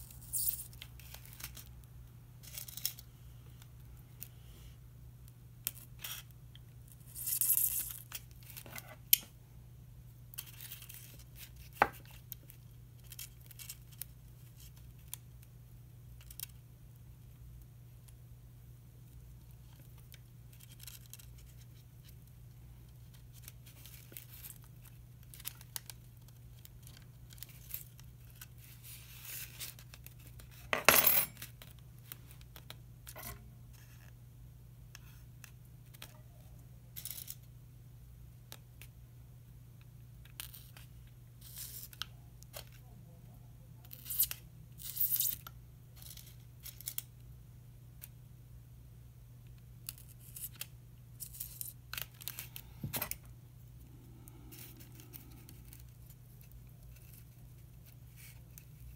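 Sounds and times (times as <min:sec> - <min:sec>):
steady low hum: 0:45.5 - 0:58.9.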